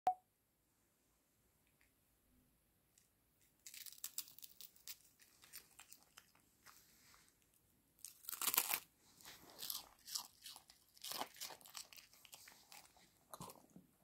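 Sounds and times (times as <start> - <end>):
dog crunching dried fish: 3.7 - 6.4, 8.0 - 13.8.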